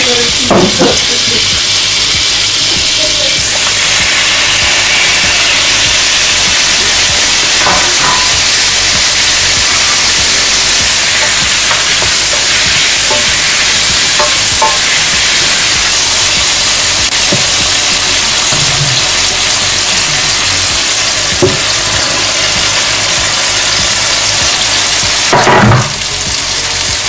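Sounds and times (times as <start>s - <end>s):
food sizzling in a frying pan: 0.0s - 27.0s.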